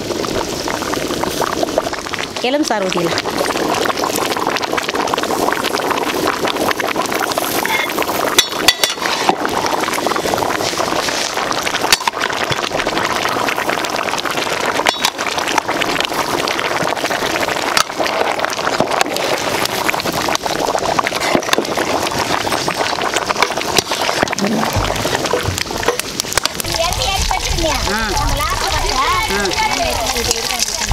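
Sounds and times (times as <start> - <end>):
pot boiling and bubbling: 0.0 - 30.9.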